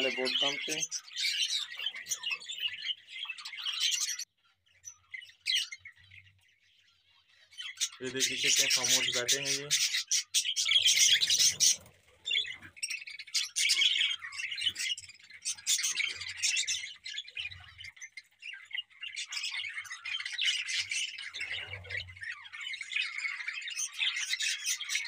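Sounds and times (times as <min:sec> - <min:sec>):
flock of budgerigars chirping: 0:00.0 - 0:25.0.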